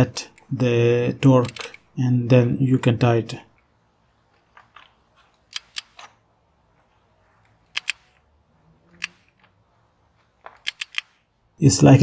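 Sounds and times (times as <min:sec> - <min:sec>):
torque wrench clicks: 0:10.6 - 0:11.1.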